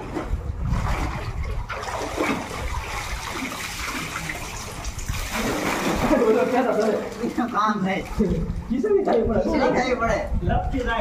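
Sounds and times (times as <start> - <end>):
water splashing and churning: 0.0 - 9.4.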